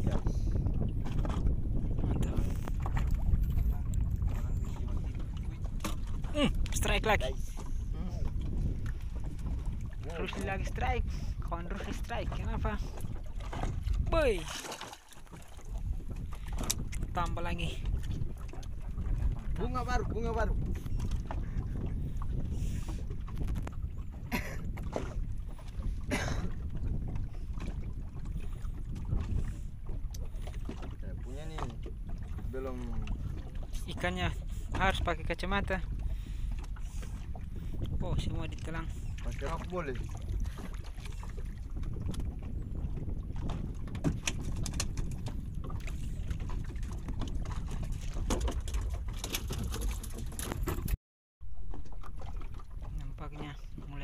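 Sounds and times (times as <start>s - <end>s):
water lapping against boat: 0.0s - 54.0s
wind rumbling on microphone: 0.0s - 54.0s
clicks and knocks of fishing gear: 16.3s - 17.0s, 23.3s - 23.8s, 43.4s - 46.0s, 46.7s - 51.0s.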